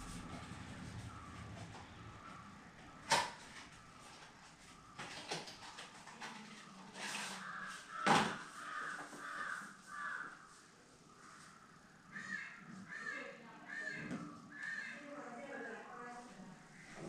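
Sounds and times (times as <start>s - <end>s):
bird calls: 0.0s - 5.2s.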